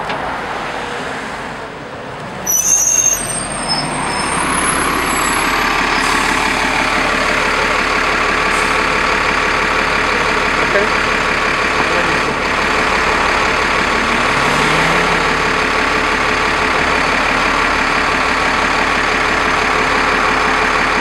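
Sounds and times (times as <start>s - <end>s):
bus engine idling: 0.0s - 21.0s
bus brake squeal: 2.4s - 6.5s.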